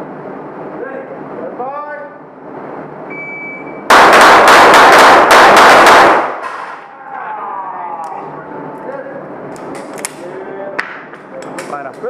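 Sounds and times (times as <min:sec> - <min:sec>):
shot timer beep: 0:03.1 - 0:03.8
rapid pistol shots: 0:03.9 - 0:06.7.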